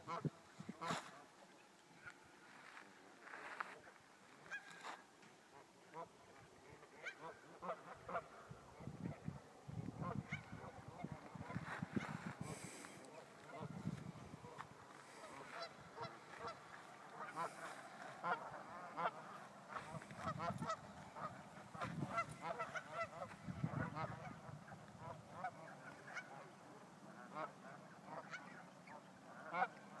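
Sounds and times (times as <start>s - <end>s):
geese honking: 5.6s - 8.5s, 9.9s - 30.0s.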